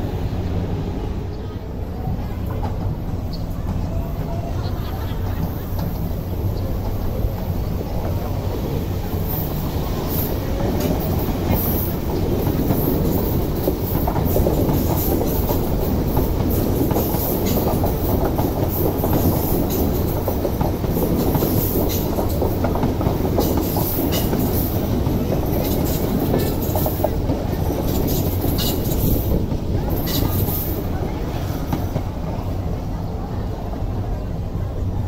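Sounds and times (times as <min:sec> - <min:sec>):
electric trains rumbling past: 0:00.0 - 0:35.0
wheels clicking over rail joints: 0:05.4 - 0:32.4.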